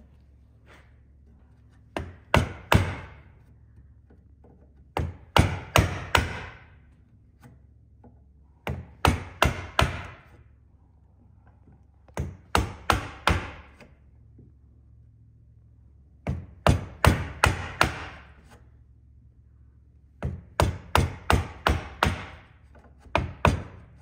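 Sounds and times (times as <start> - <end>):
mallet striking chisel into wood: 2.0 - 3.2, 4.9 - 6.7, 8.6 - 10.4, 12.1 - 13.9, 16.2 - 18.4, 20.2 - 23.9.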